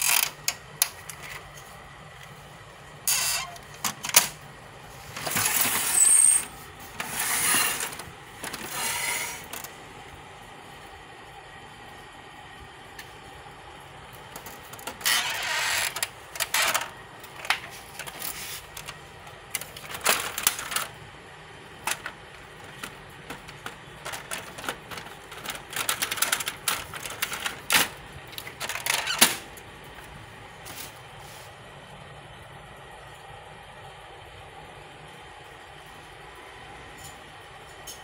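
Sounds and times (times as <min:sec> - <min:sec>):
plastic printer parts rattling: 0:00.0 - 0:01.6, 0:03.1 - 0:04.4, 0:05.1 - 0:09.8, 0:14.1 - 0:21.1, 0:21.7 - 0:31.0
faint steady hum: 0:00.0 - 0:38.0
plastic scraping: 0:05.1 - 0:09.7, 0:14.4 - 0:21.0, 0:21.8 - 0:29.5.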